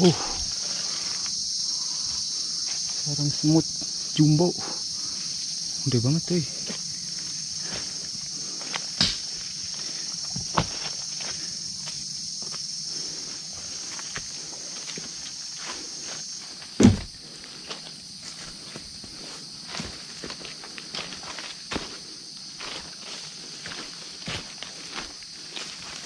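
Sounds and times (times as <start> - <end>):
footsteps on forest trail: 0.0 - 26.0
high-pitched insect drone: 0.0 - 26.0
sharp knocks: 16.8 - 17.1.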